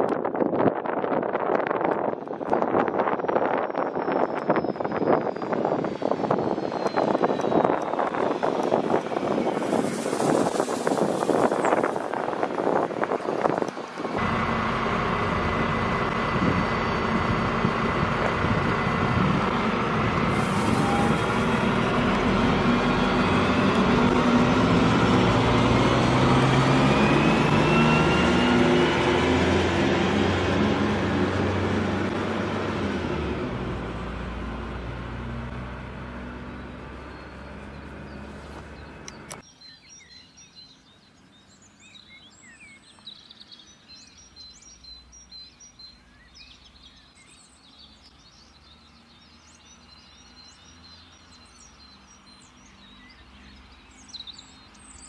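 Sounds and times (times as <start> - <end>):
diesel railcar engine accelerating: 1.2 - 39.4
birds chirping: 4.0 - 29.6, 36.2 - 55.0.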